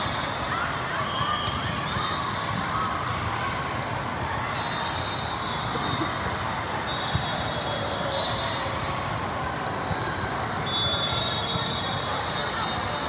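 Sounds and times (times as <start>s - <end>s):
crowd voices: 0.0s - 13.0s
short high-pitched whistle: 10.6s - 12.4s.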